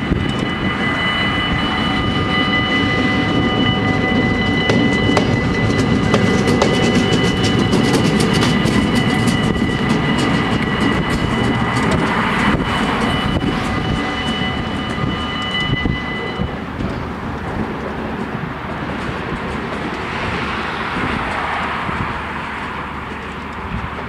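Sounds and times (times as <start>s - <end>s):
level crossing bells ringing: 0.0s - 17.3s
diesel locomotive engine: 0.0s - 24.0s
train wheels: 0.0s - 24.0s.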